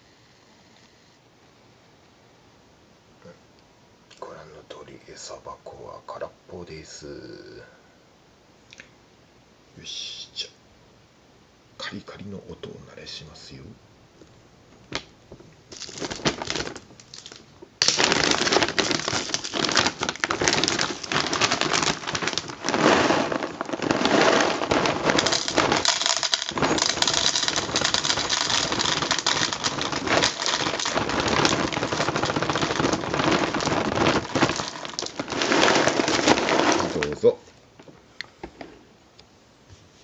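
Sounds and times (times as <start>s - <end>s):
kibble rattling in container: 15.7s - 37.3s.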